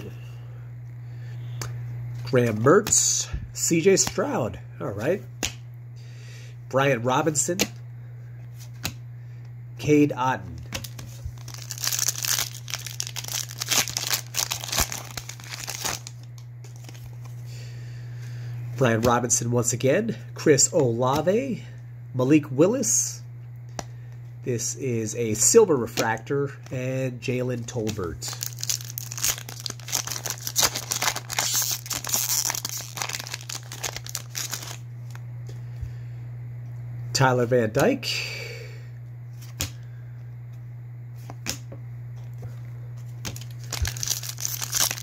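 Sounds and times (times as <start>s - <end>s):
foil pack tearing and crinkling: 10.8s - 17.2s, 27.9s - 35.2s, 43.3s - 45.0s.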